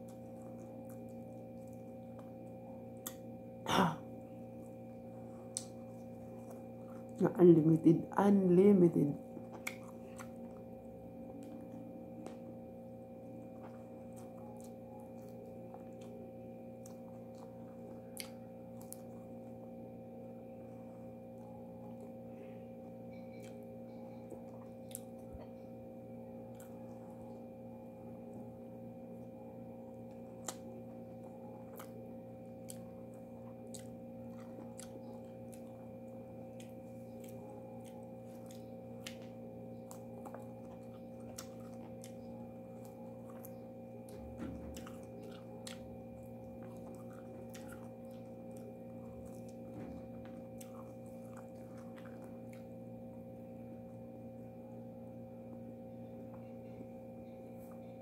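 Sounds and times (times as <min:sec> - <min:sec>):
person chewing food: 0:00.0 - 0:03.6, 0:04.2 - 0:07.2, 0:09.2 - 0:54.6
electrical hum: 0:00.0 - 0:58.0
wet mouth clicks and smacks: 0:09.5 - 0:10.3.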